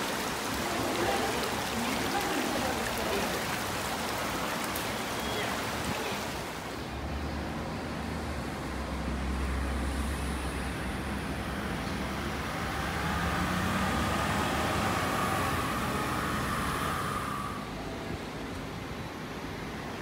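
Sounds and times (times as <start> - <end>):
low engine hum: 6.8 - 20.0
vehicle passing by: 7.0 - 18.0.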